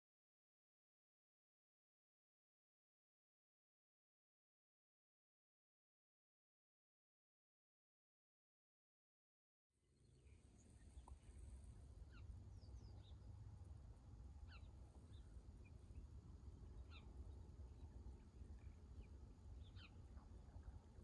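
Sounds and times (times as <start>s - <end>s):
faint bird chirps: 10.0s - 13.4s, 14.4s - 20.6s.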